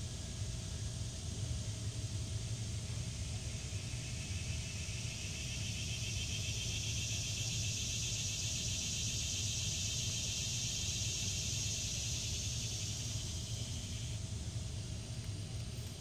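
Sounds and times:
high hiss: 2.8s - 15.2s.

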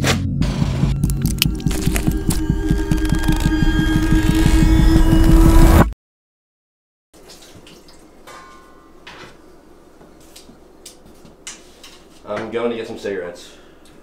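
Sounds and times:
dark throbbing film score drone: 0.0s - 5.9s
dishes clinking: 8.2s - 9.4s.

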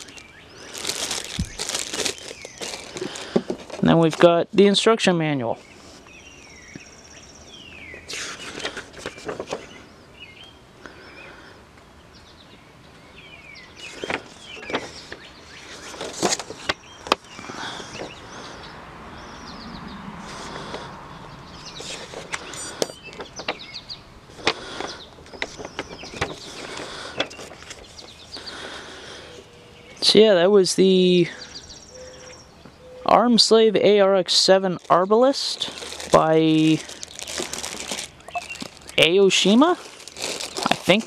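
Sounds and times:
paper pages rustling: 0.0s - 4.3s, 8.0s - 9.8s, 13.9s - 18.1s, 21.8s - 23.5s, 24.4s - 28.4s, 34.8s - 41.0s
faint birds chirping: 0.0s - 41.0s.

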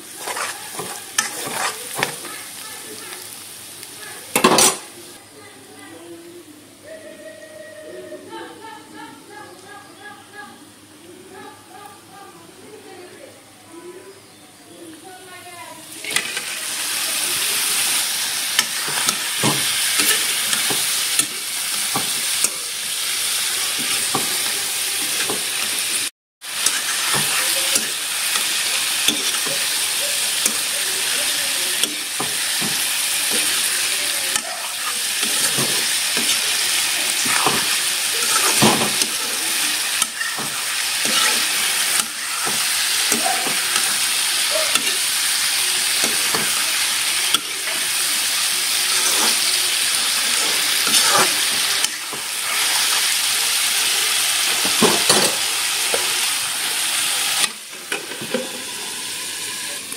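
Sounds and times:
chicken sizzling in hot oil: 0.0s - 5.5s, 15.0s - 59.9s
metal spatula scraping a wok: 0.1s - 2.3s, 26.5s - 30.7s, 34.6s - 45.2s, 48.6s - 53.2s.

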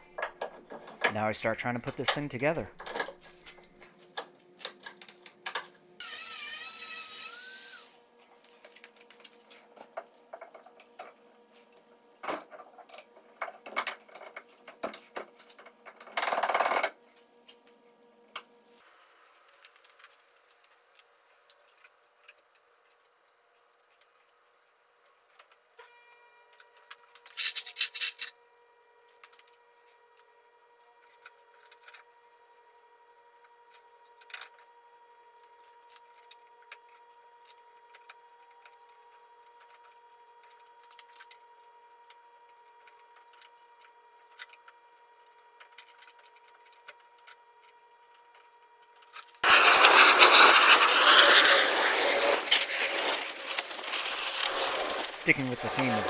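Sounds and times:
power saw cutting: 6.0s - 8.0s, 49.4s - 56.0s.

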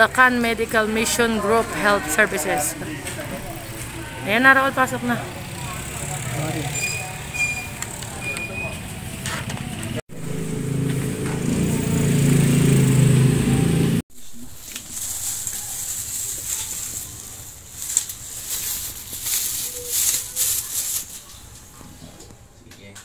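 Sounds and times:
plastic bag crinkling: 14.2s - 21.5s.

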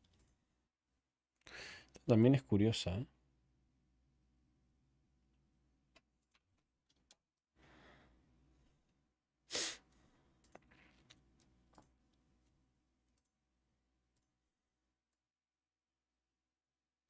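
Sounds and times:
sharp sniff: 9.5s - 9.9s.

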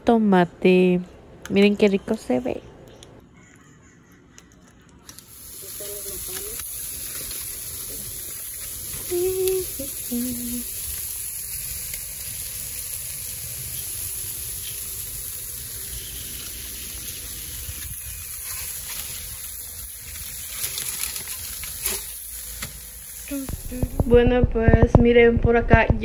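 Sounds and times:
food sizzling on a grill: 5.1s - 24.2s.

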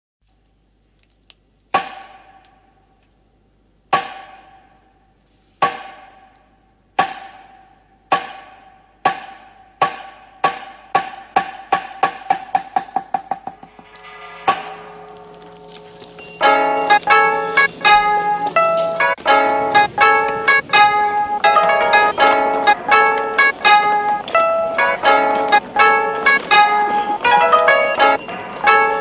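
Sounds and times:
sharp wooden knocks: 1.7s - 2.6s, 3.9s - 4.7s, 5.6s - 6.3s, 7.0s - 13.9s, 16.4s - 29.0s
soft music: 13.9s - 29.0s.

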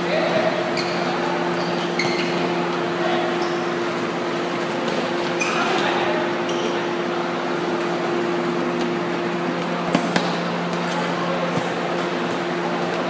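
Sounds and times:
steady hum: 0.0s - 13.0s
sneaker squeaks on floor: 0.4s - 3.9s, 5.0s - 6.9s.

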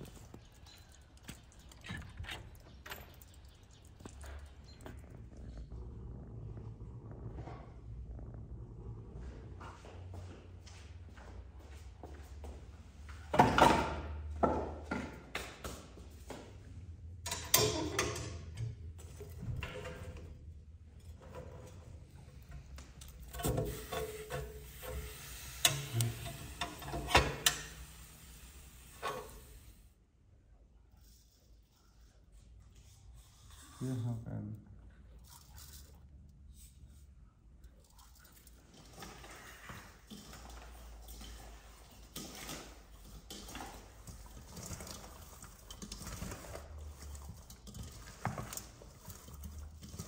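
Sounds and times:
stove door scraping and clanking: 23.2s - 28.2s, 28.8s - 29.6s.

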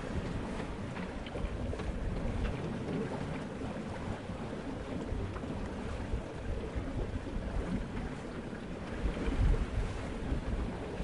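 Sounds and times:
light water splashes: 0.0s - 11.0s
water rushing along boat hull: 0.0s - 11.0s
wind: 0.0s - 11.0s.

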